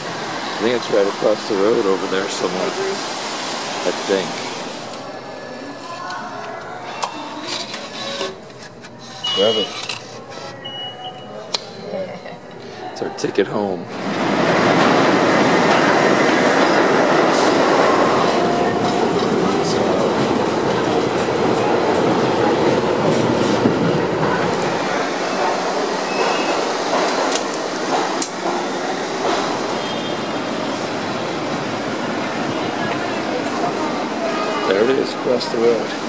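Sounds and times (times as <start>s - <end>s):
subway train wheels rumbling: 0.0s - 7.0s, 12.8s - 36.0s
wheel squeal: 9.0s - 10.8s.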